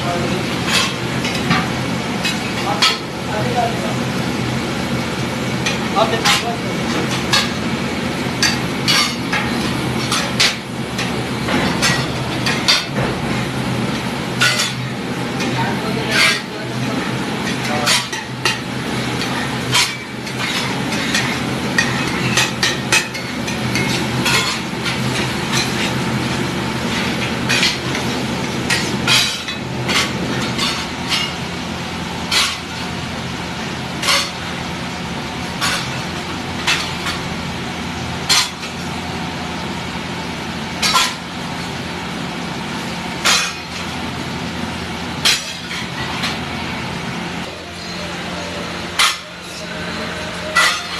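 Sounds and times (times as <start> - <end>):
steady hum: 0.0 - 50.9
metal spatula clanking on griddle: 0.1 - 3.6, 5.6 - 7.6, 8.4 - 13.2, 14.0 - 26.0, 26.9 - 31.4, 32.3 - 32.8, 34.0 - 34.4, 35.6 - 36.0, 38.3 - 38.8, 40.8 - 41.2, 43.2 - 43.9, 45.2 - 46.4, 47.5 - 50.9.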